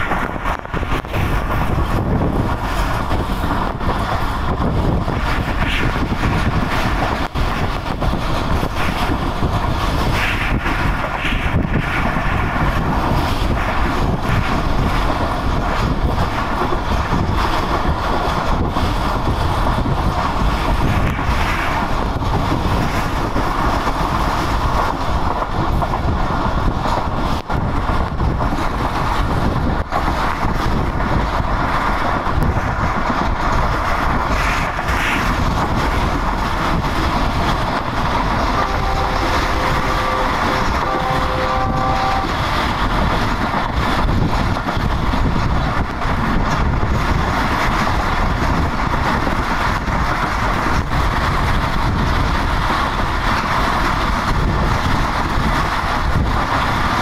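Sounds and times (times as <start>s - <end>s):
train wheels rumbling on rails: 0.0s - 57.0s
wind rushing past window: 0.0s - 57.0s.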